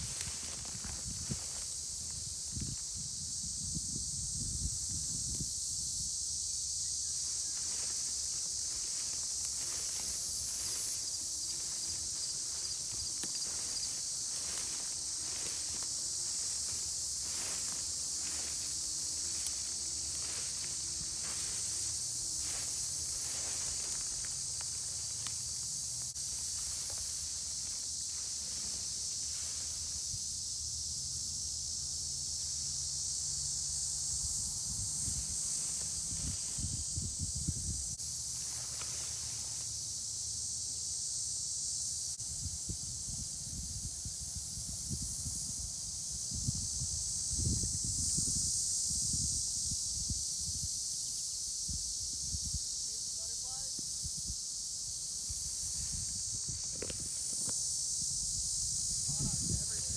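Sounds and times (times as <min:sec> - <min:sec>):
footsteps swishing through grass: 0:00.0 - 0:02.8, 0:07.2 - 0:30.2, 0:35.0 - 0:37.3, 0:38.4 - 0:39.6
crickets chirping: 0:00.0 - 0:59.9.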